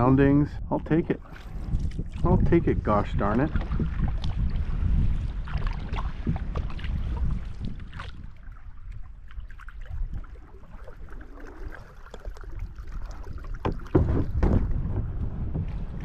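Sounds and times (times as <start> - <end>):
wind: 0.0 - 16.0
knocks and scrapes on stones: 13.7 - 15.7.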